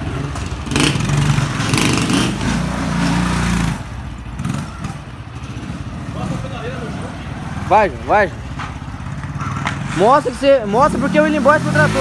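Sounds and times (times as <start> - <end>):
small motorcycle engine revving: 10.8 - 12.0.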